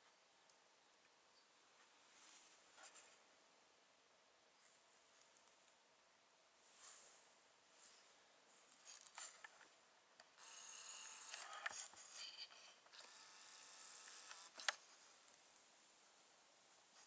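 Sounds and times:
camcorder zoom motor whining: 0:10.4 - 0:15.1.

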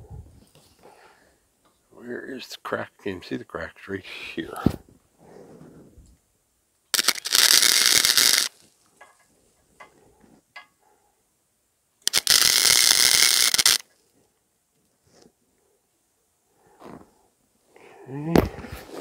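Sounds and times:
welder crackling: 0:06.9 - 0:08.6, 0:12.0 - 0:13.8.

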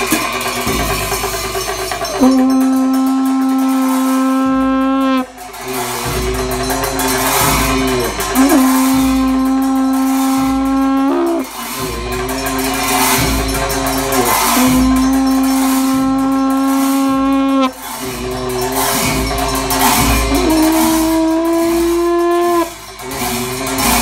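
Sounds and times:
cymbal clashes: 0:00.0 - 0:24.0
slow low drum beats: 0:00.0 - 0:24.0
long horn blowing held notes: 0:02.0 - 0:24.0.

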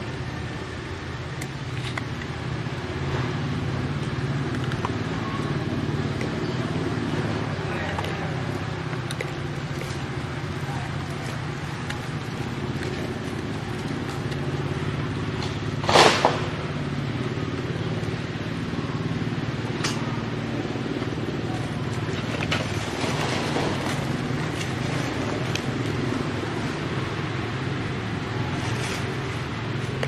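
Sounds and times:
low motor hum: 0:00.0 - 0:30.0
loud burst of noise: 0:15.8 - 0:16.9.

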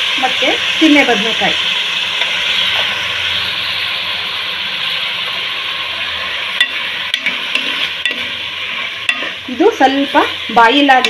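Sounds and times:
vegetables sizzling in oil: 0:00.0 - 0:11.0
spoon knocking against pan: 0:06.6 - 0:08.4, 0:09.0 - 0:09.4
spoon stirring: 0:06.6 - 0:09.9.

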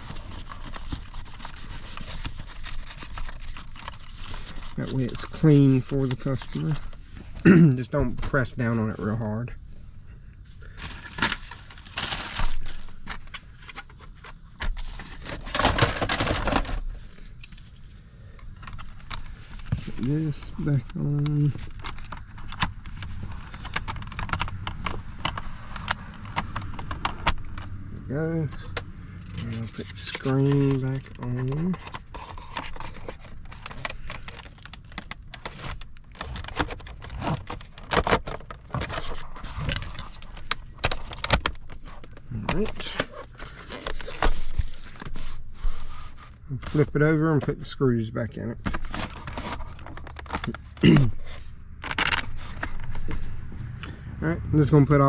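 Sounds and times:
plastic rubbing and scraping: 0:00.0 - 0:09.4, 0:10.7 - 0:53.8
plastic parts clicking and tapping: 0:20.6 - 0:27.8, 0:31.4 - 0:44.5
plastic clicks and rattles: 0:20.9 - 0:27.7.

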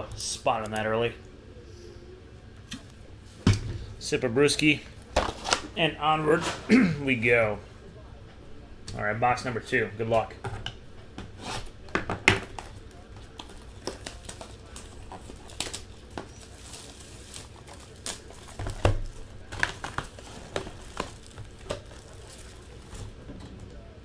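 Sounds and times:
plastic wrap crinkling and tearing: 0:12.3 - 0:23.4.

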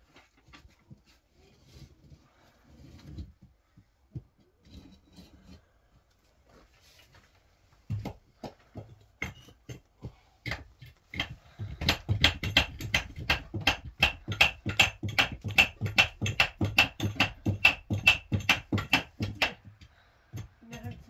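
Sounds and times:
tool knocking on wall or beams: 0:11.2 - 0:21.0.

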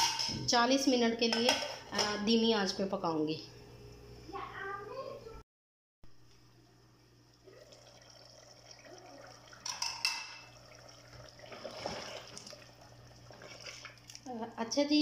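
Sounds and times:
ladle stirring thick gravy: 0:10.6 - 0:14.3.

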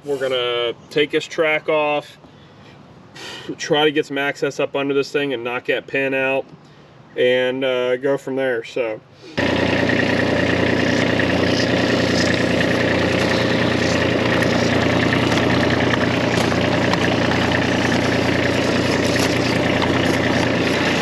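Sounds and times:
skid steer engine running: 0:09.4 - 0:21.0.

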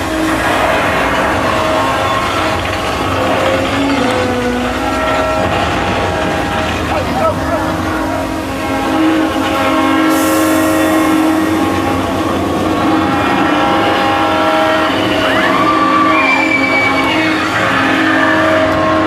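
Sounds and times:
rumbling roar: 0:00.0 - 0:19.0
screeching sweeps: 0:00.0 - 0:19.0
steady held tones: 0:00.0 - 0:19.0.

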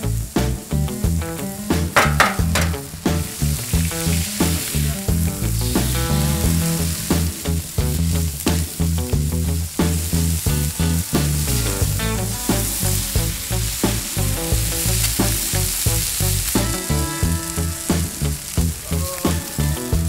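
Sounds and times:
food sizzling on a griddle: 0:00.0 - 0:20.0
background music with steady beat: 0:00.4 - 0:04.4.

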